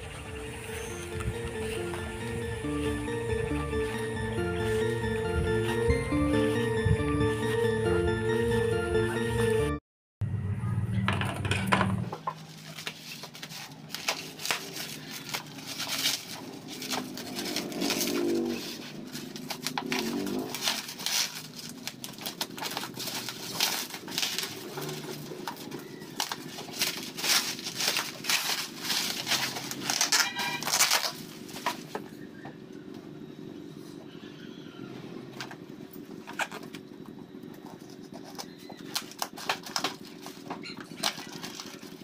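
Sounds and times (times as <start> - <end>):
bubble wrap crinkling: 12.4 - 32.0, 37.7 - 42.0.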